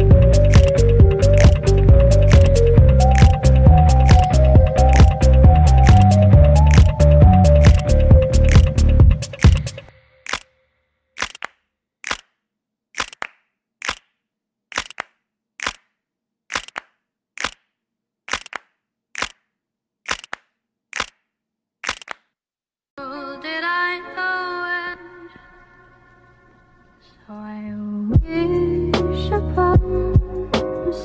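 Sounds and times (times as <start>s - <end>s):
wavering musical tone: 0.0s - 9.2s
sharp double clicks: 0.0s - 10.5s, 11.2s - 12.3s, 13.0s - 14.1s, 14.7s - 15.9s, 16.5s - 17.7s, 18.3s - 19.4s, 20.1s - 21.2s, 21.8s - 22.2s.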